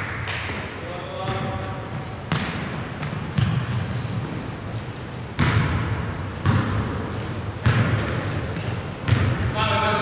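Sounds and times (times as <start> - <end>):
sneaker squeak: 0.4 - 4.4, 5.0 - 6.7, 7.6 - 9.4
basketball bouncing on hardwood: 2.3 - 3.7, 5.4 - 6.9, 7.6 - 9.5.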